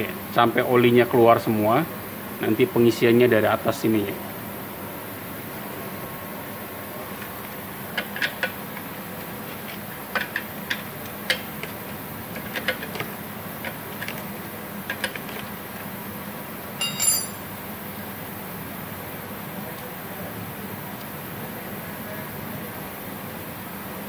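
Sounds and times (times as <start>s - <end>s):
ringing metal clink: 16.8s - 17.5s.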